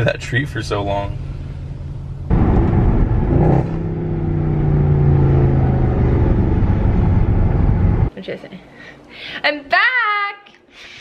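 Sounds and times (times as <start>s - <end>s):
car engine accelerating: 0.6s - 8.1s.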